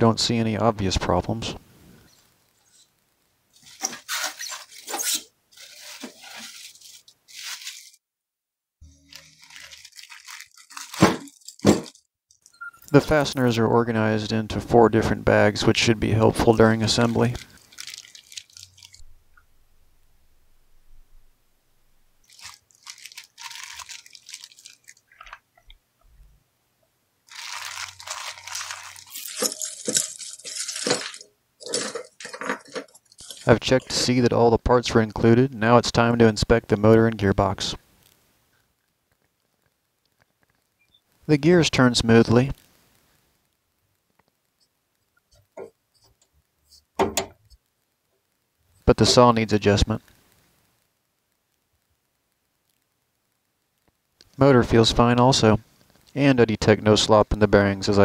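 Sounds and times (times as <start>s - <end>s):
plastic bags crinkling: 3.5s - 8.0s, 8.8s - 13.5s, 15.6s - 19.1s, 22.2s - 25.8s, 27.2s - 34.3s.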